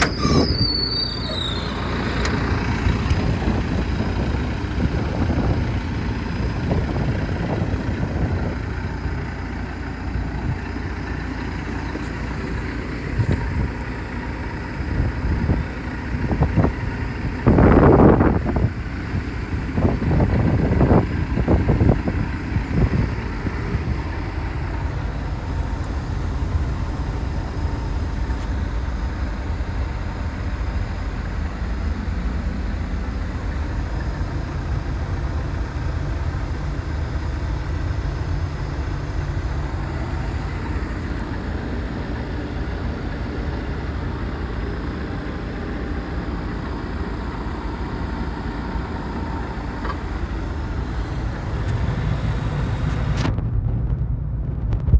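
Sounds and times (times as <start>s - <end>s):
excavator diesel engine idling: 0.0s - 53.6s.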